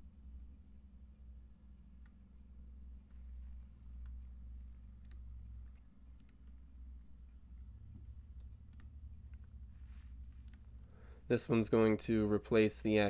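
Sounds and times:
low steady hum: 0:00.0 - 0:13.0
computer mouse clicks: 0:05.0 - 0:05.3, 0:06.2 - 0:06.6, 0:08.4 - 0:09.5, 0:10.3 - 0:10.7.

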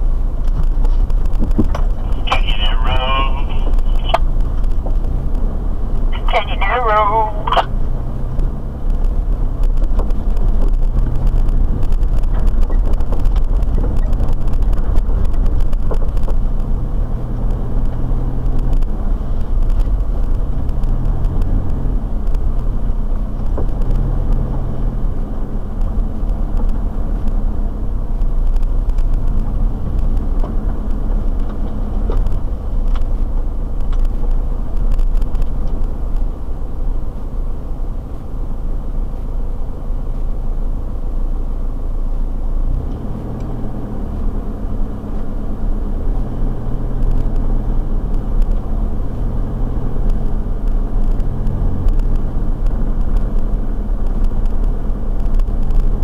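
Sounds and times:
tyres rumbling: 0:00.0 - 0:39.9
vehicle driving on dirt track: 0:00.0 - 0:56.0.

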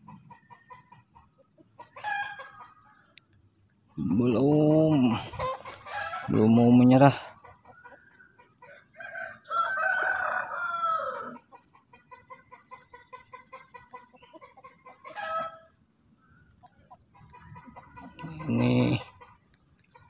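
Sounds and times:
bird calls: 0:00.0 - 0:08.8, 0:11.2 - 0:20.0.

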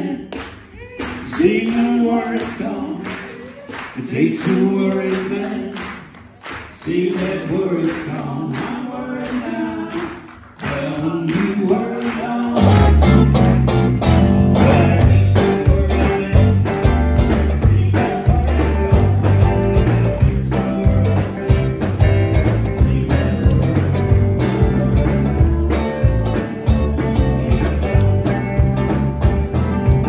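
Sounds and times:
person singing: 0:00.0 - 0:06.0, 0:06.6 - 0:30.0
live rock band playing: 0:11.5 - 0:30.0.

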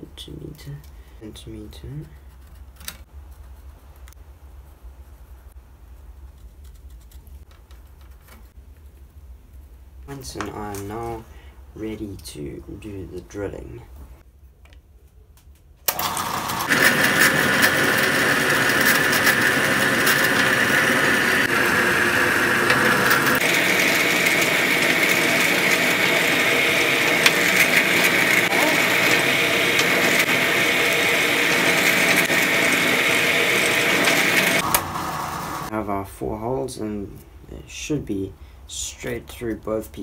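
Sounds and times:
drill press boring through wood: 0:15.9 - 0:35.7.

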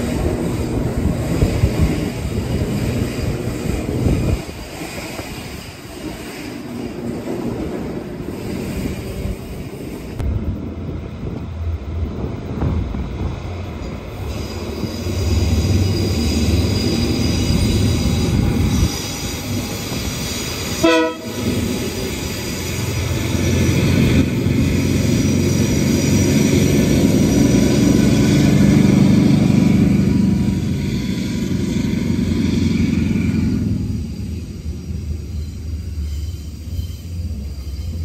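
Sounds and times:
diesel locomotive engine drone: 0:00.0 - 0:38.0
train horn blast: 0:20.8 - 0:21.6.

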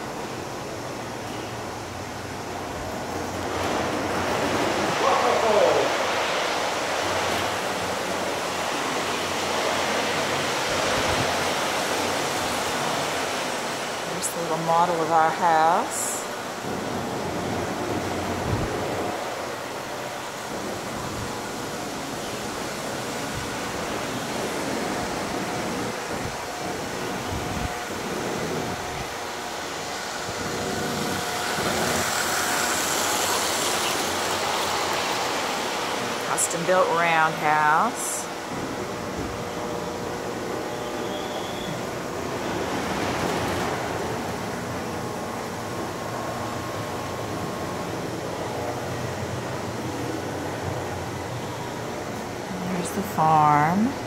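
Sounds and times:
model trains rolling on track: 0:30.8 - 0:36.3.

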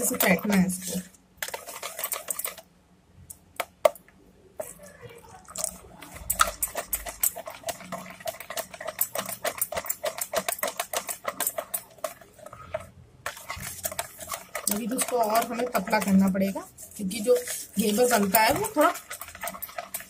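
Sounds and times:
wire whisk beating batter: 0:00.0 - 0:02.7, 0:05.5 - 0:20.0.

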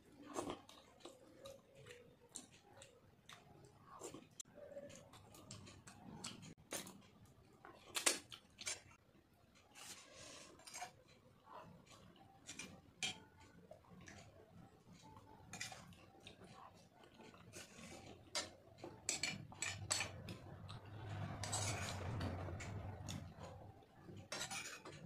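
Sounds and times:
metal spoon scraping steel plate: 0:17.6 - 0:20.2, 0:21.0 - 0:22.9, 0:24.3 - 0:25.0.

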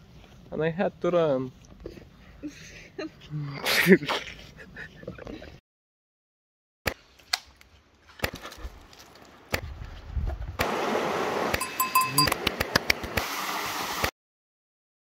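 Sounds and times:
stream water rushing: 0:10.6 - 0:14.1
short high tones: 0:11.6 - 0:12.4.

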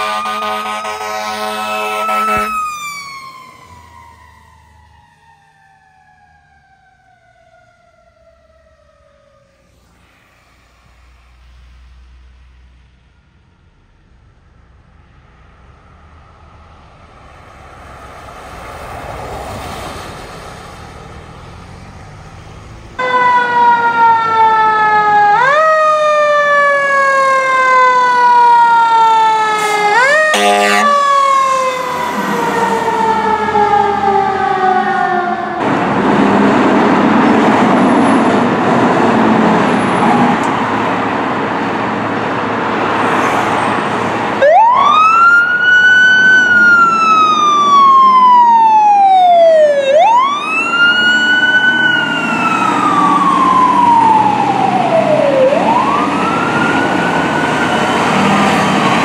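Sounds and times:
horn blast: 0:00.0 - 0:02.6, 0:29.5 - 0:31.1
faint road rumble: 0:00.0 - 0:59.0
fire engine siren: 0:00.0 - 0:59.0
loud rushing noise: 0:09.6 - 0:12.6.

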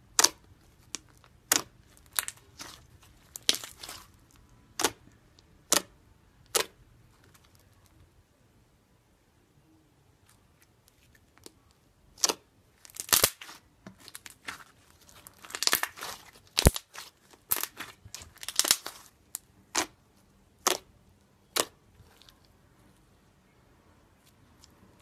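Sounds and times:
slime crackling pops: 0:12.2 - 0:14.6, 0:15.3 - 0:19.0.

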